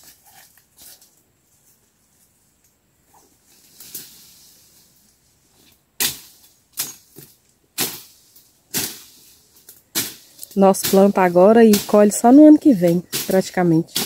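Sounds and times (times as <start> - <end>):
hand tool chopping stems: 6.0 - 14.0.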